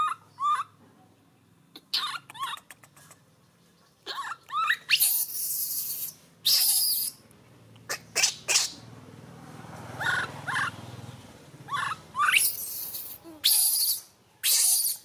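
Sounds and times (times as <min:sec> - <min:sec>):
baby monkey screeching cries: 0:00.0 - 0:00.8, 0:01.8 - 0:02.7, 0:04.1 - 0:07.2, 0:07.9 - 0:08.8, 0:10.0 - 0:10.8, 0:11.7 - 0:15.0.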